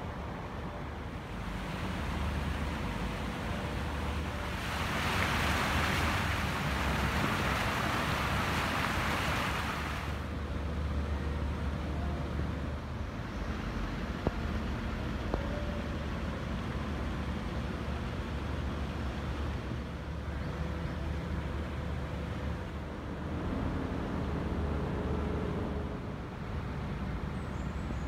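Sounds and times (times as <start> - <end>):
fountain jets splashing: 1.1 - 10.3.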